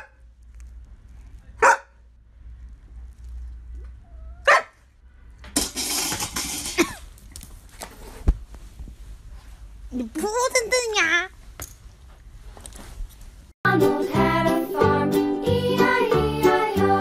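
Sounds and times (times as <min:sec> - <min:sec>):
large dog barking: 0:01.6 - 0:02.0, 0:04.4 - 0:04.8.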